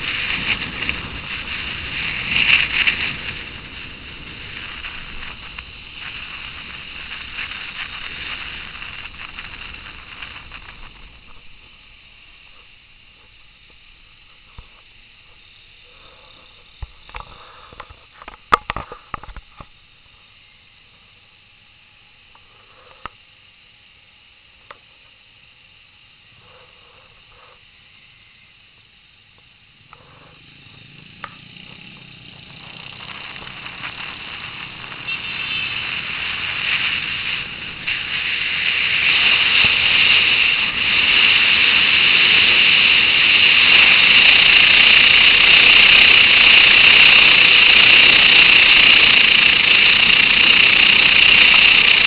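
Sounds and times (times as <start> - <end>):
motorcycle wind and road noise: 0.0 - 14.8, 29.7 - 52.0.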